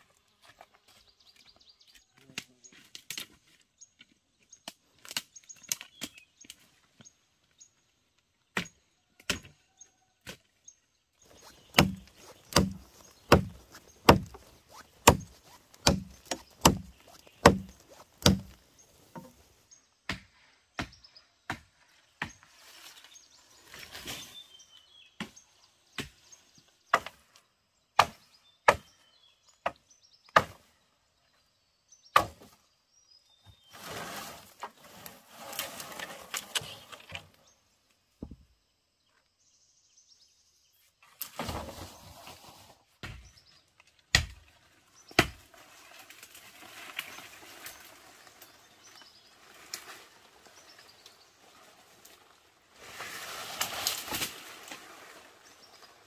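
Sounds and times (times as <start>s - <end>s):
scraping rustle: 11.2s - 19.6s, 33.6s - 37.5s, 41.0s - 42.9s, 44.5s - 56.0s
tool knocking on bamboo: 11.7s - 14.4s, 15.0s - 19.3s.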